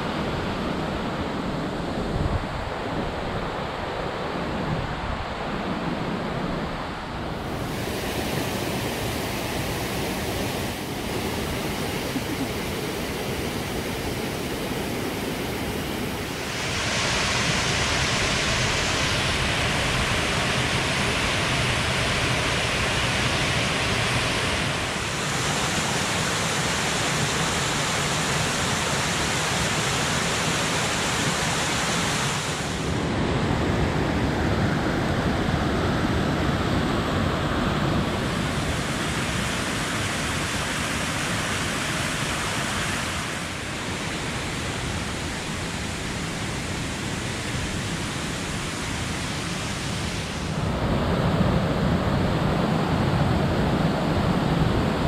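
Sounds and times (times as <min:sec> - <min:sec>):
waterfall rushing: 0:07.3 - 0:33.2.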